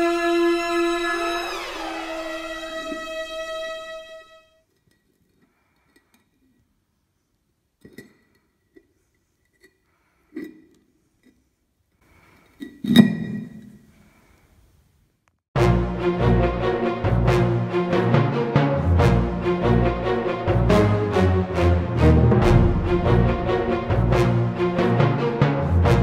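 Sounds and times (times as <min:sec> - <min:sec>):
music: 0:00.0 - 0:04.6, 0:15.6 - 0:26.0.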